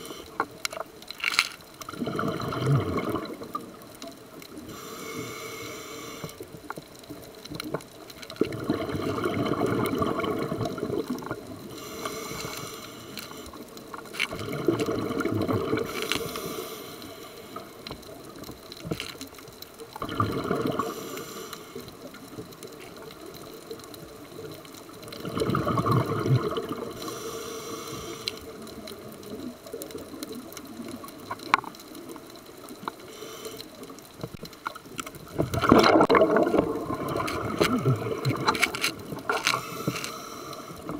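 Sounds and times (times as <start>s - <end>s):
regulator inhale hiss: 0.0s - 0.6s, 4.5s - 6.6s, 11.6s - 13.8s, 15.8s - 18.0s, 20.8s - 22.2s, 26.9s - 28.7s, 32.9s - 34.0s, 39.4s - 40.9s
gurgling exhaled bubbles: 1.8s - 4.7s, 7.7s - 12.4s, 14.0s - 16.2s, 19.8s - 21.2s, 22.0s - 27.4s, 34.8s - 39.9s.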